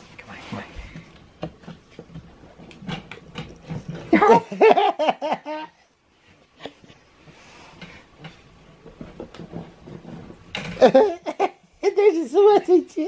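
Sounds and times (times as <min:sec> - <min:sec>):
person laughing loudly: 0:04.1 - 0:05.8, 0:10.8 - 0:12.0.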